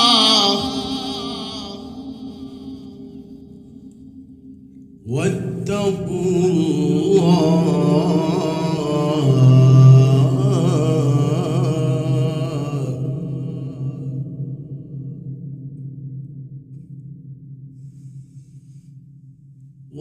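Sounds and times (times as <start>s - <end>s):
man chanting through a microphone: 5.1s - 14.0s.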